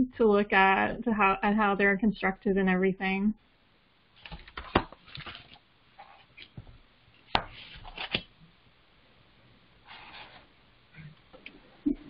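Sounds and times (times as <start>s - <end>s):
paper rustling: 4.2s - 6.6s, 7.4s - 8.3s, 9.8s - 10.5s
book handling clicks and knocks: 4.2s - 8.3s.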